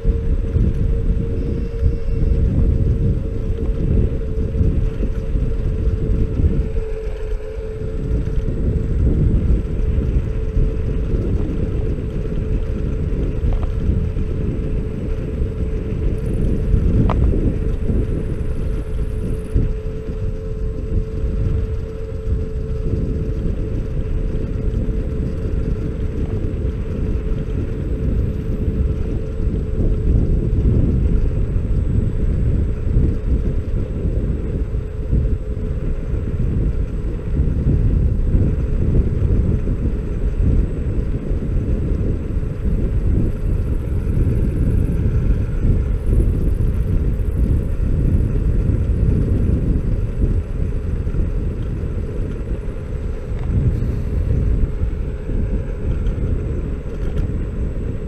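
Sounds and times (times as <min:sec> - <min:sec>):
electric scooter motor hum: 0:00.0 - 0:58.0
wind on microphone: 0:00.0 - 0:58.0
tyre rumble on road: 0:02.2 - 0:58.0.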